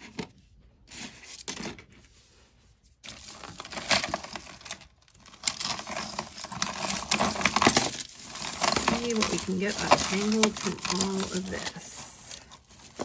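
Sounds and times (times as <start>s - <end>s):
jewelry chains and beads clinking: 3.2s - 13.0s.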